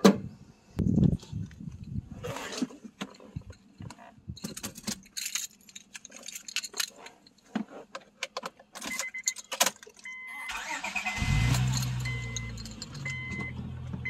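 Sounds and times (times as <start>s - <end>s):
keys jangling: 3.1s - 7.5s, 8.8s - 10.1s, 11.4s - 13.2s.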